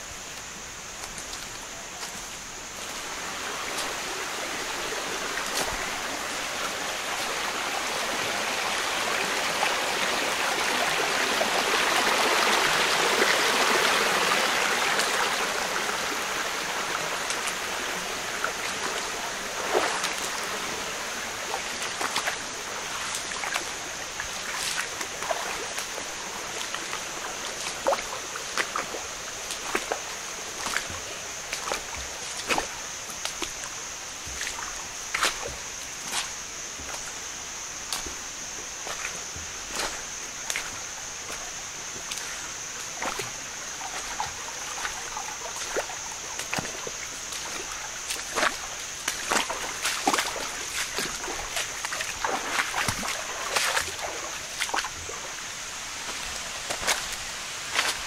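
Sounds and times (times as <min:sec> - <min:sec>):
river water running: 0:00.0 - 0:58.0.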